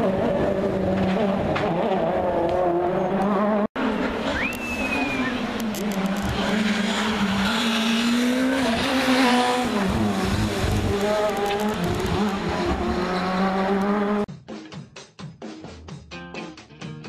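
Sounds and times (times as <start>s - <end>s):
rally car engine revving: 0.0s - 14.3s
music with drum beat: 14.3s - 17.0s.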